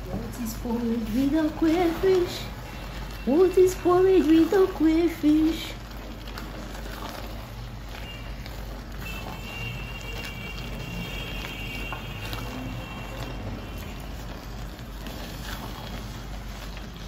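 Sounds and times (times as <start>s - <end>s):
porridge bubbling: 0.0s - 17.0s.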